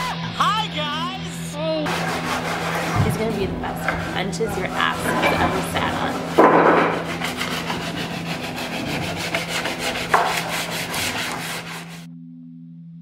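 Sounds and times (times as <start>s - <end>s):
sanding block on wood: 1.9s - 12.1s.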